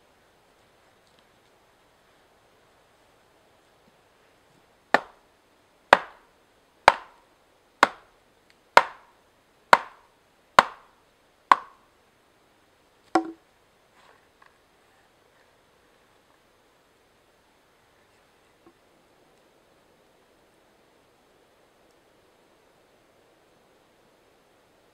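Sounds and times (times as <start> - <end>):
axe chopping log: 5.0 - 5.2, 5.9 - 6.2, 6.9 - 7.2, 7.8 - 8.1, 8.8 - 9.1, 9.7 - 10.0, 10.6 - 10.9, 11.5 - 11.8, 13.2 - 13.4.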